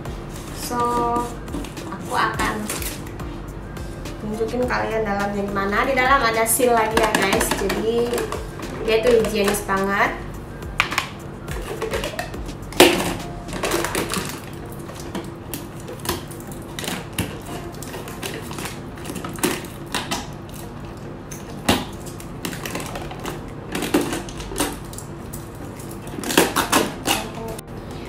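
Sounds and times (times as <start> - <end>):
foil seal crinkling and tearing: 11.7 - 27.6.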